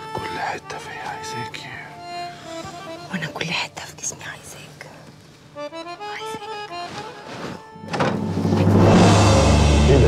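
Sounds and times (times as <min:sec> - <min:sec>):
low held suspense notes: 0:07.8 - 0:10.0.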